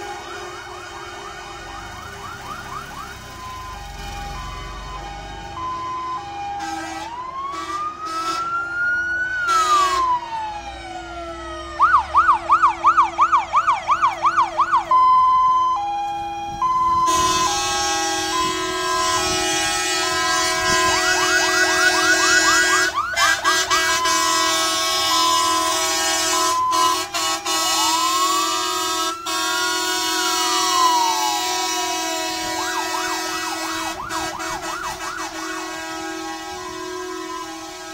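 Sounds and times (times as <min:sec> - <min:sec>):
siren wail rising and falling: 0:00.0 - 0:37.9
two-tone hi-lo siren: 0:00.0 - 0:37.9
siren fast yelp: 0:11.6 - 0:37.9.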